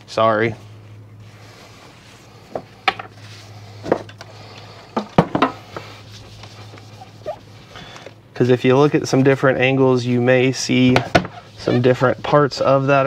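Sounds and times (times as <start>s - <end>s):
steady low hum: 0.0s - 13.0s
paper towel rustling: 5.8s - 8.0s, 8.7s - 13.0s.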